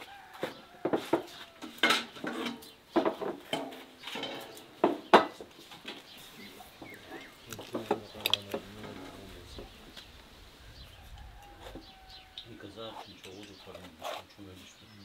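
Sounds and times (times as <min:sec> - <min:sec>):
plates and trays clattering: 0:00.9 - 0:06.0.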